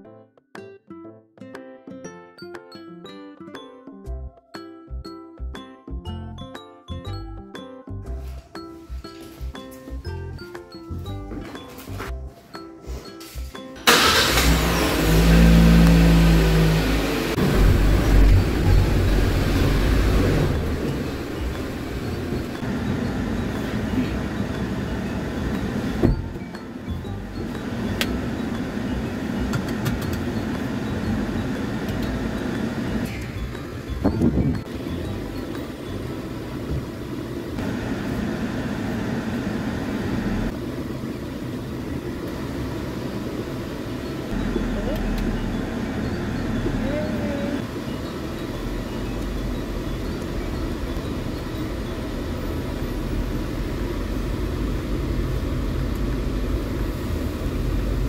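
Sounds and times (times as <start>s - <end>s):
car engine running: 13.8s - 58.0s.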